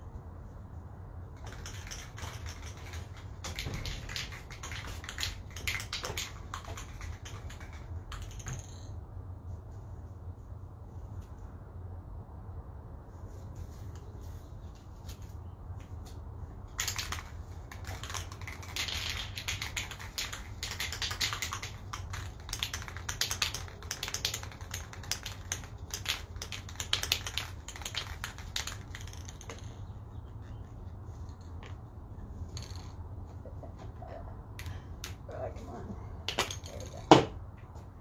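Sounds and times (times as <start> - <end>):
spray can ball rattling: 1.4 - 8.9, 16.7 - 31.5, 32.3 - 33.1.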